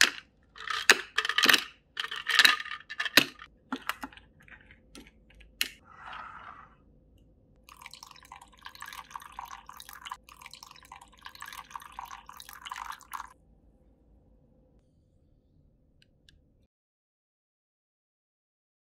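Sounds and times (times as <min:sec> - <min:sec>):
tea poured over ice: 0:07.7 - 0:13.4.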